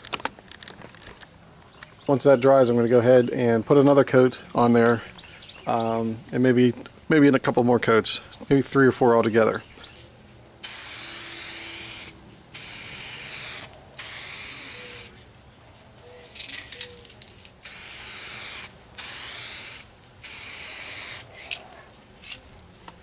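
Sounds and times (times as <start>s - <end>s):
aerosol can spraying: 10.6s - 15.2s, 17.6s - 21.5s.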